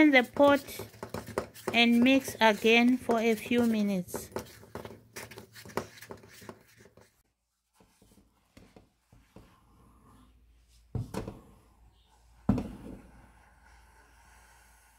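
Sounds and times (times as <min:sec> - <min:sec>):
wooden spoon scraping in pot: 0:00.0 - 0:07.2.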